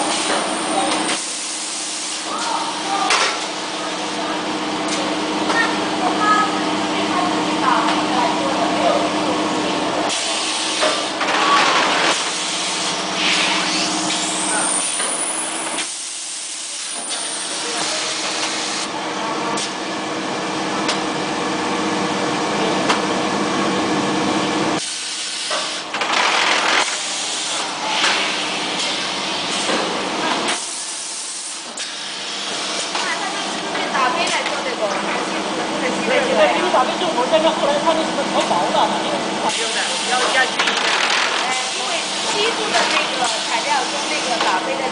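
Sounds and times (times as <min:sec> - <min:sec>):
machine mechanical hum: 0:00.0 - 0:44.9.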